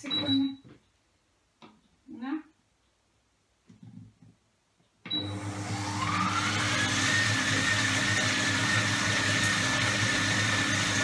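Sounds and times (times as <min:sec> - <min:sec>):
blender motor whining: 0:05.2 - 0:11.0.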